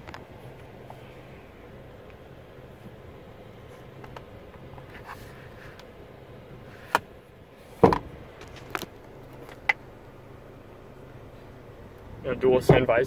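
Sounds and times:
faint cabin hum: 0.0 - 13.0
sun visor clicks: 6.8 - 7.1
sun visor thump: 7.8 - 9.8.

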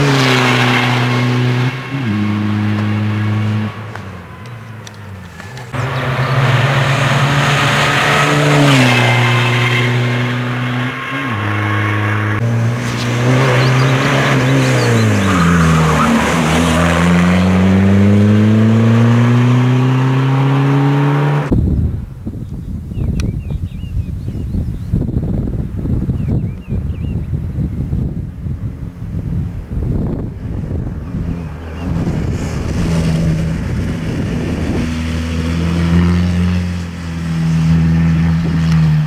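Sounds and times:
car engine accelerating hard: 0.0 - 21.5, 30.0 - 39.0
wind: 0.0 - 39.0.

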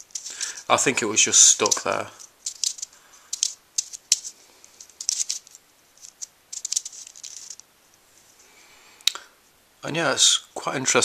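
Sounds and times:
plastic puzzle clicking and scraping: 0.0 - 7.7.

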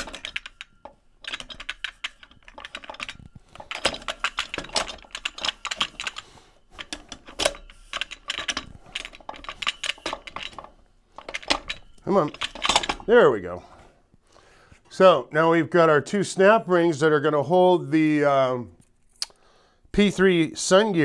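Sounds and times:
metal splines clicking and rattling: 0.0 - 13.8.

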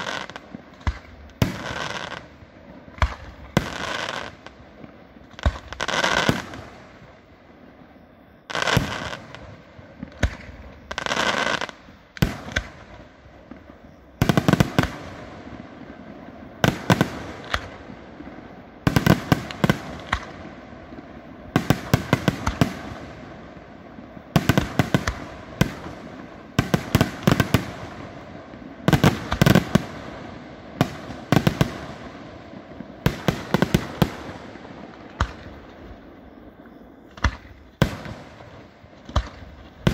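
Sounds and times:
sharp firework bangs: 18.8 - 20.4, 33.0 - 35.7, 37.1 - 39.9.

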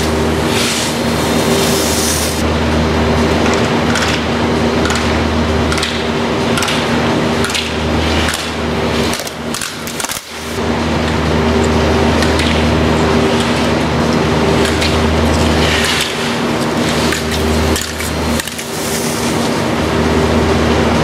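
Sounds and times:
skis scraping on snow: 0.0 - 2.4, 15.3 - 19.7
machinery hum: 0.0 - 21.0.

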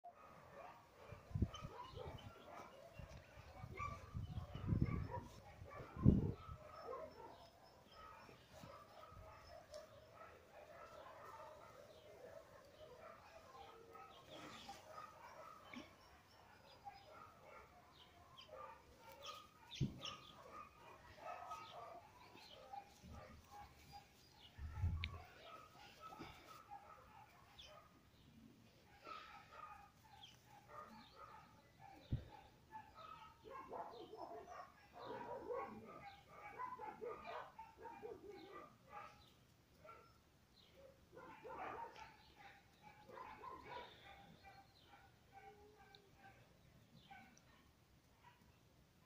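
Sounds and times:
dog barking faintly: 0.0 - 28.0, 28.8 - 40.2, 40.8 - 48.6
birds calling: 1.0 - 27.9.

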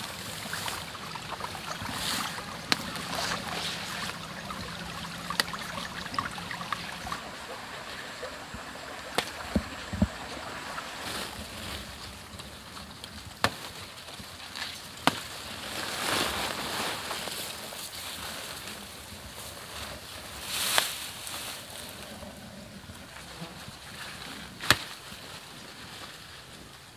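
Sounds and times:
leaves rustling: 0.0 - 26.9
stems snapping: 0.4 - 7.3, 9.0 - 10.3, 11.2 - 15.4, 24.6 - 25.0.

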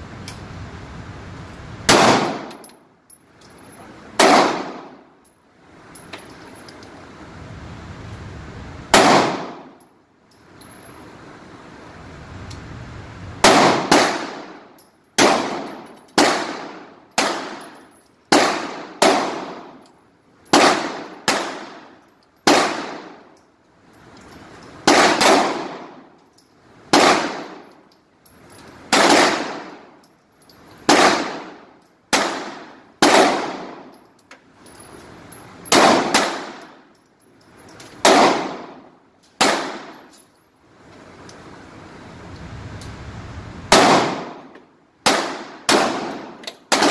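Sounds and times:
pistol shots echoing indoors: 1.9 - 2.6.

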